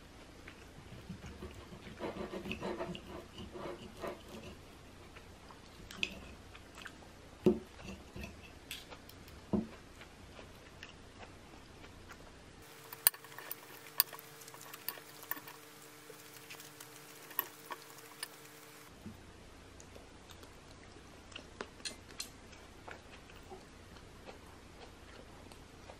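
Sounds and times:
faint steady hum: 0:00.0 - 0:25.9
fork and knife scraping plate: 0:01.3 - 0:04.6, 0:12.6 - 0:18.9.

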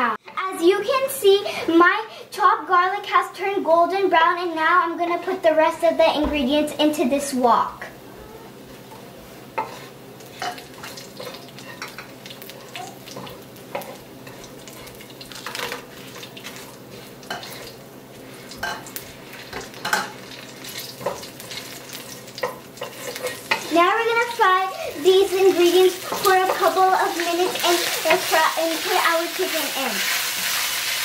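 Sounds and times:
oil sizzling: 0:07.6 - 0:31.0
wooden spatula scraping a wok: 0:09.4 - 0:12.0, 0:12.6 - 0:19.7, 0:22.4 - 0:23.8.

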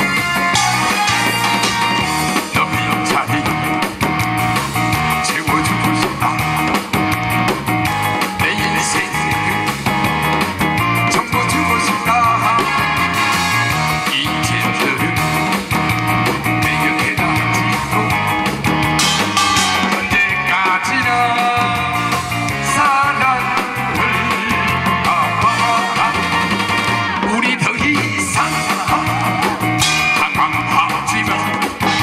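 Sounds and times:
wavering lead melody: 0:00.0 - 0:03.1, 0:18.7 - 0:22.6, 0:29.0 - 0:30.9
steady drum beat: 0:00.0 - 0:32.0.

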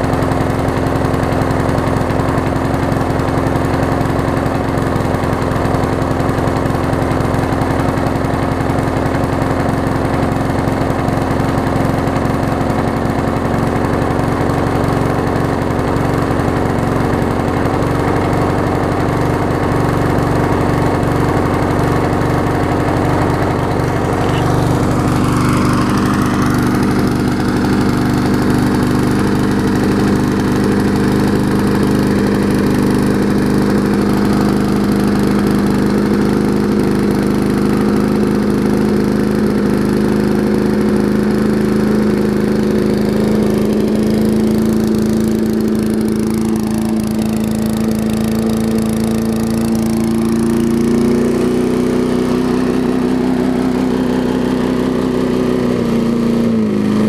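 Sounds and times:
lawn mower engine running: 0:00.0 - 0:57.0.

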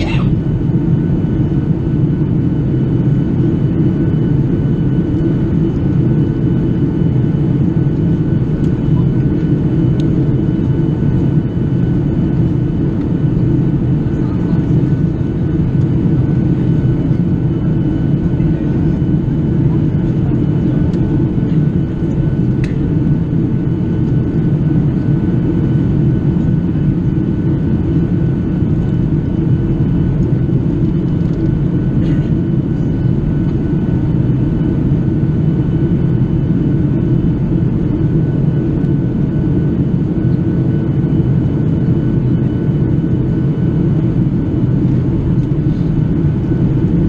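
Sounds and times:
airplane cabin engine roar: 0:00.0 - 0:47.0.

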